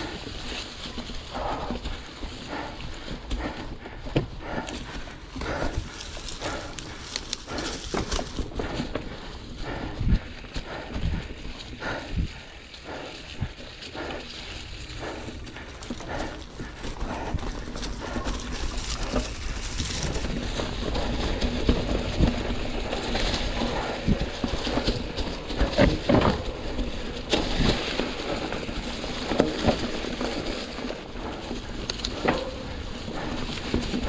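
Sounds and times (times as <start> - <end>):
bike rattling over rocks: 0.0 - 34.0
tyres crunching through dry leaves: 0.0 - 34.0.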